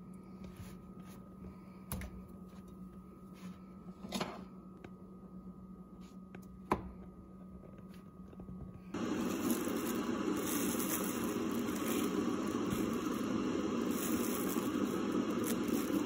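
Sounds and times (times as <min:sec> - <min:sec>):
steady low hum: 0:00.0 - 0:16.0
bread rubbing in frying pan: 0:09.0 - 0:16.0.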